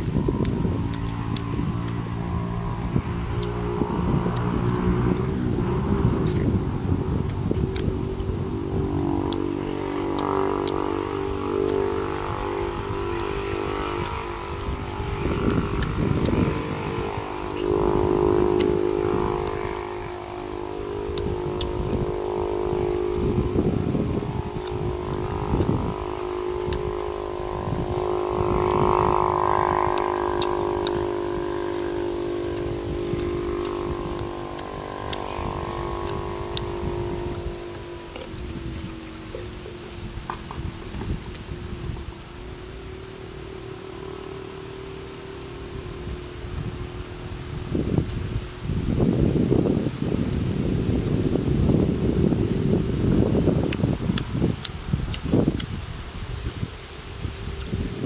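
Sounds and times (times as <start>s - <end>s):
drone of low tones: 0.0s - 58.0s.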